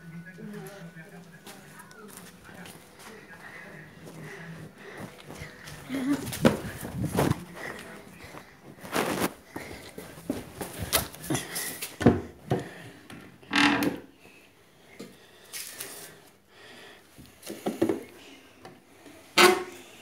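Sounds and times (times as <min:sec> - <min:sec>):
knocks and bumps on furniture: 0:06.0 - 0:07.5, 0:12.0 - 0:12.7.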